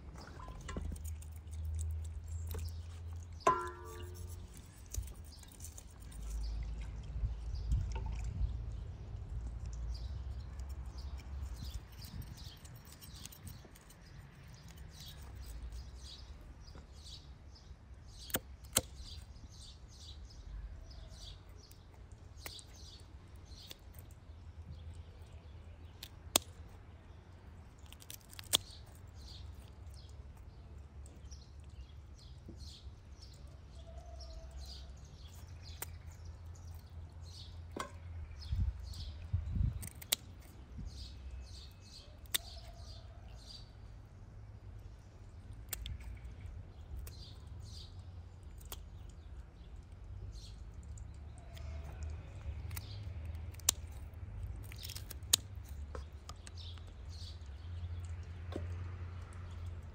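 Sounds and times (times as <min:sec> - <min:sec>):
small birds chirping: 0:00.0 - 0:59.9
scissors snipping fish: 0:00.6 - 0:06.6, 0:10.4 - 0:15.9, 0:27.8 - 0:29.8, 0:39.6 - 0:41.0, 0:41.8 - 0:42.9, 0:50.4 - 0:56.8.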